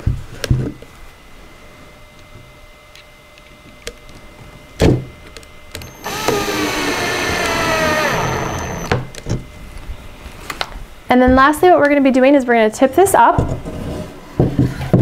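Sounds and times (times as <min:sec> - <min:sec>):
cordless drill driving screw: 0:05.8 - 0:09.1.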